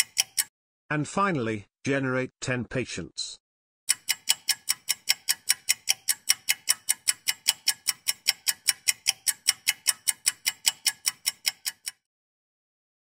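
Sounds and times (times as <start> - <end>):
clock-like ticking: 0.0 - 0.5, 3.9 - 12.1.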